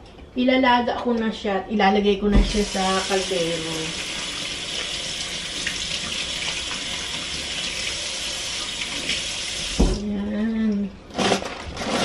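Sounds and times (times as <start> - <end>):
tap water splashing into sink: 3.6 - 10.1.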